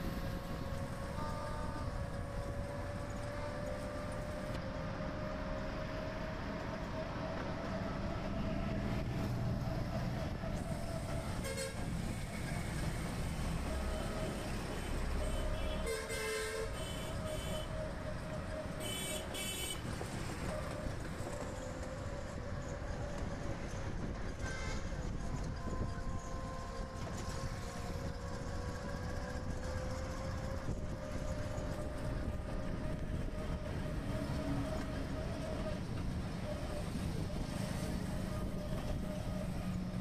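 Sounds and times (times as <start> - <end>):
auto-rickshaw engine drone: 0.0 - 40.0
road noise: 0.0 - 40.0
vehicle horns tooting: 11.4 - 11.8, 14.8 - 17.7, 18.8 - 19.9.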